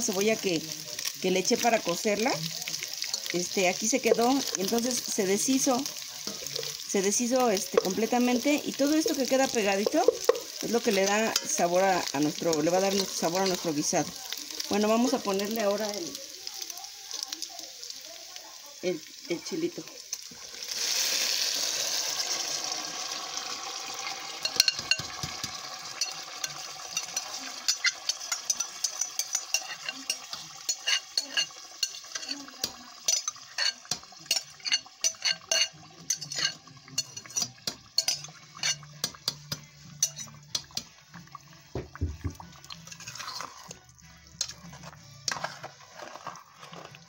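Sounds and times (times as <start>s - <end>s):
sauce sizzling in hot oil: 0.0s - 47.0s
spoon clinking and scraping glass: 24.4s - 25.3s, 26.0s - 32.4s, 33.1s - 40.8s, 42.7s - 43.8s, 44.4s - 47.0s.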